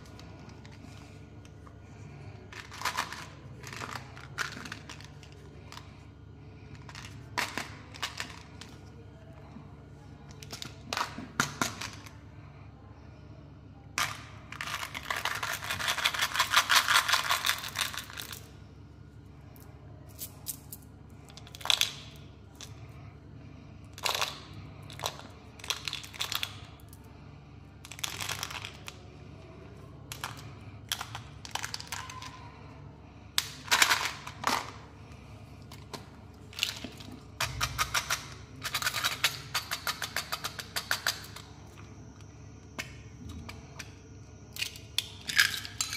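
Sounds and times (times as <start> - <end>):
mints rattling out of plastic box: 2.1 - 6.0, 14.0 - 18.5, 23.9 - 26.8, 27.8 - 29.0.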